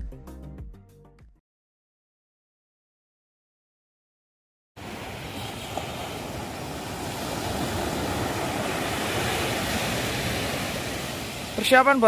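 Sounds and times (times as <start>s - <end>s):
ocean surf washing on shore: 4.8s - 12.0s.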